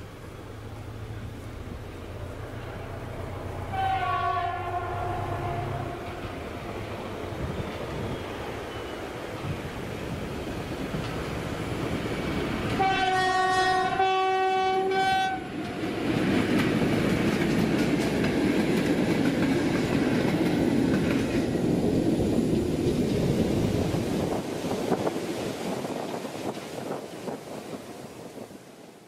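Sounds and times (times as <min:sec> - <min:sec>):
train wheels rumbling on rails: 0:00.0 - 0:29.0
locomotive horn blast: 0:03.6 - 0:06.2, 0:12.8 - 0:15.6.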